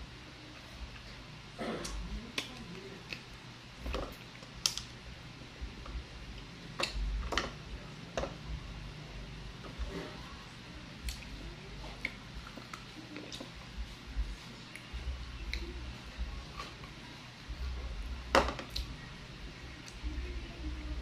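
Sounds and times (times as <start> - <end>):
chewing with wet mouth smacks: 11.0 - 13.6.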